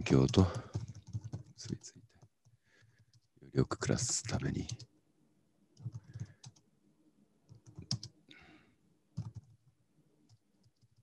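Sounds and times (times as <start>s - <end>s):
keystrokes on computer keyboard: 0.0s - 3.4s, 5.8s - 6.7s, 7.5s - 8.2s, 9.2s - 11.0s.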